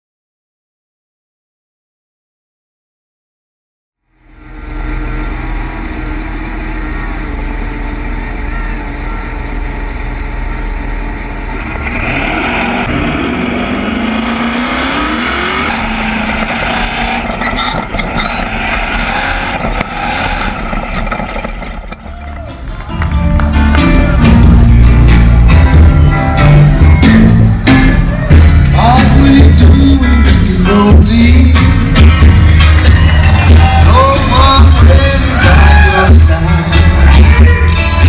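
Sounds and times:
race truck engine revving: 4.1 - 38.0
rough ground noise: 15.7 - 23.6.

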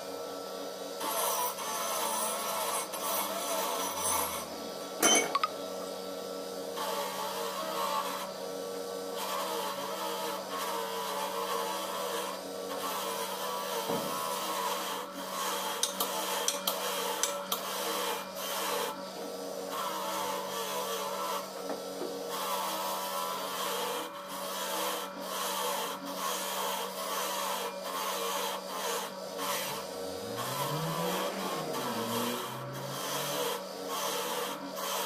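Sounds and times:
bench grinder humming: 0.0 - 6.1, 6.7 - 35.0
metal scraping on grinder wheel: 1.0 - 5.4, 9.2 - 19.0, 22.3 - 35.0.

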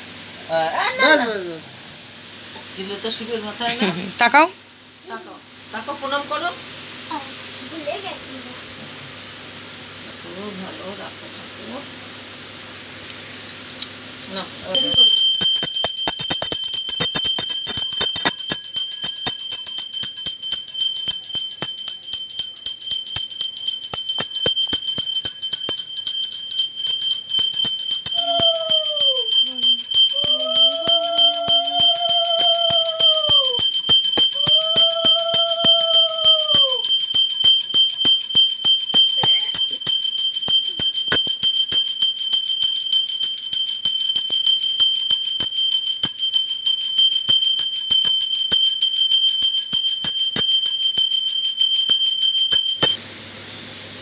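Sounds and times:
bell rung rapidly: 14.7 - 53.0.

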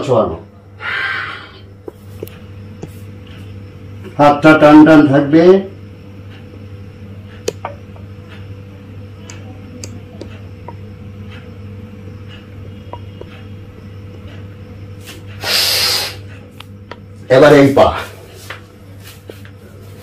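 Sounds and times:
low steady hum: 0.0 - 20.0
loud hissing in-breath: 0.8 - 1.7, 15.4 - 16.3.

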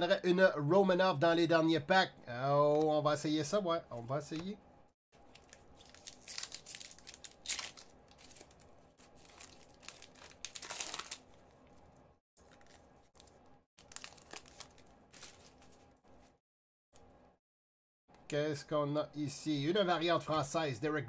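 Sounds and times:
plastic wrapper crinkling and tearing: 5.2 - 15.9.

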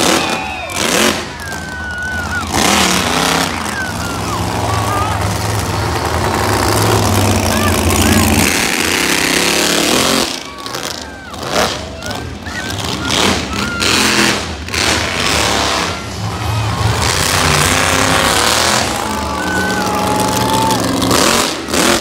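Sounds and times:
crowd calling out: 0.0 - 22.0
monster truck engine running: 0.0 - 22.0.

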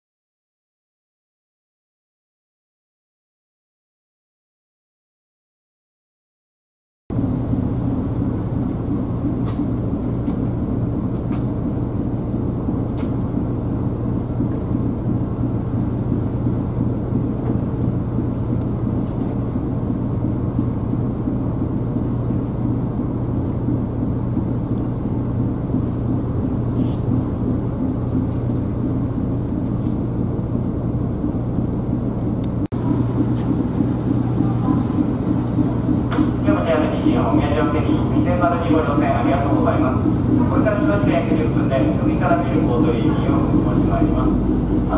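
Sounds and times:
ferry engine humming: 7.1 - 44.9.

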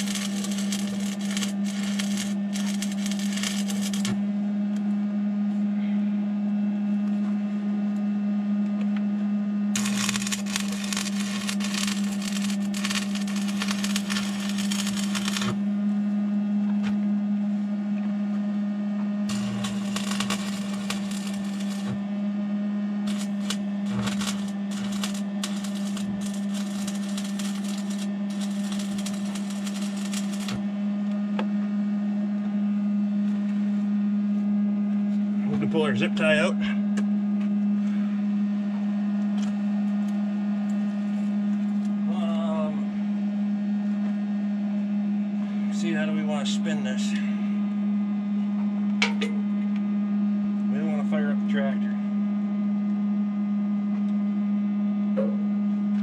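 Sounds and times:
welding arc crackling and sizzling: 0.0 - 4.2, 9.7 - 15.7, 19.3 - 22.0, 23.0 - 30.6
steady low hum: 0.0 - 56.0.

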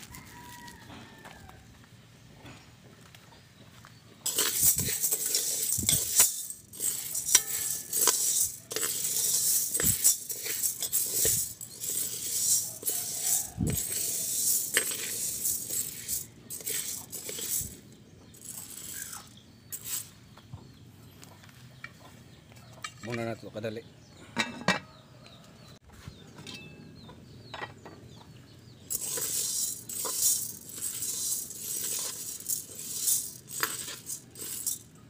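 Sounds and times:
metal spoon clinking: 4.2 - 20.0, 28.9 - 35.0
dry beans rattling in metal pot: 4.2 - 20.1, 28.9 - 35.0.

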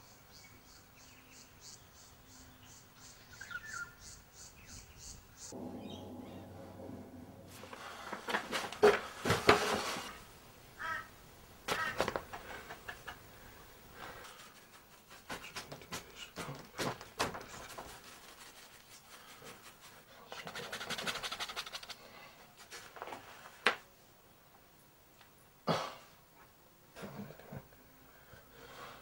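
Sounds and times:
person breathing heavily: 7.5 - 9.3, 12.3 - 14.6, 28.0 - 29.0.

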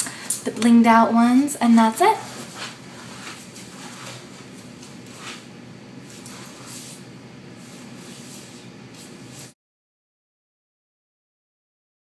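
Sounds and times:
soft rustles of movement: 1.6 - 9.6.

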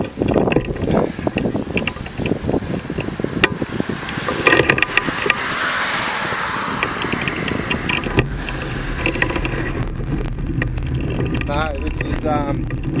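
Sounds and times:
low rumble: 3.6 - 13.0
car driving past: 4.9 - 12.7.

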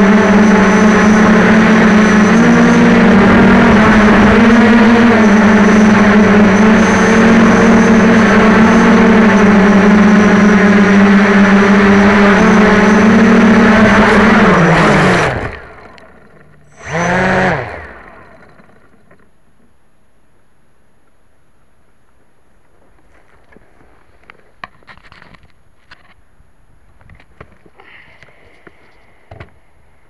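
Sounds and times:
drone propellers buzzing: 0.0 - 19.2.

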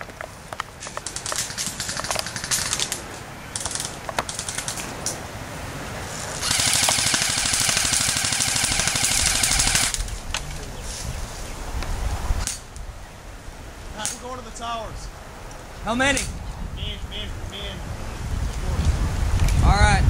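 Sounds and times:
sharp clicks: 0.0 - 5.2, 6.4 - 10.6, 14.0 - 14.2
airsoft rifle full-auto burst: 6.4 - 10.0.

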